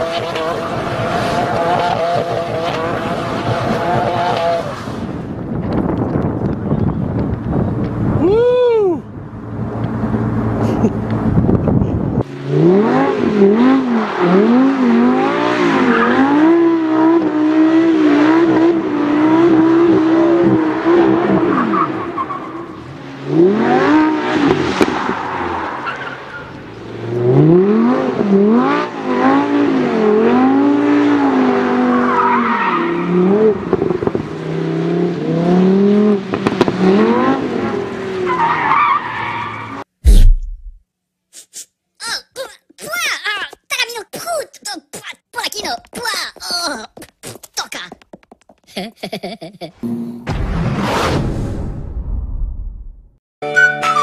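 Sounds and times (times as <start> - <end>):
supercar engines revving: 0.0 - 5.2, 9.4 - 21.8.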